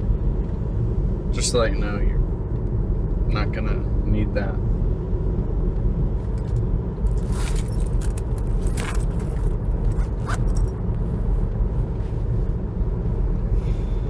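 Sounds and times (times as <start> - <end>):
car cabin road rumble: 0.0 - 14.0
handbag rustling and clinking: 6.4 - 10.8.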